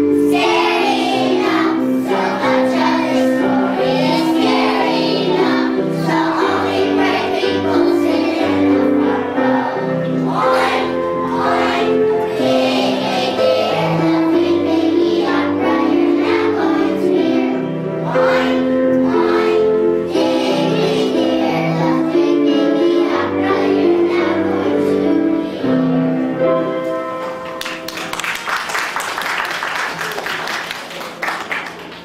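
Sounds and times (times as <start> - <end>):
instrumental accompaniment: 0.0 - 28.6
children singing in chorus: 0.1 - 26.0
people clapping: 27.2 - 32.0.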